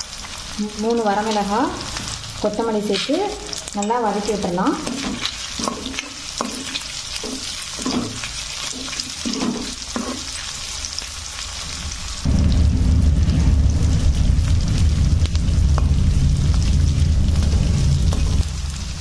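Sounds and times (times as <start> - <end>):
food sizzling in oil: 0.0 - 19.0
stirring sounds: 2.9 - 10.7
loud low rumble: 12.3 - 19.0.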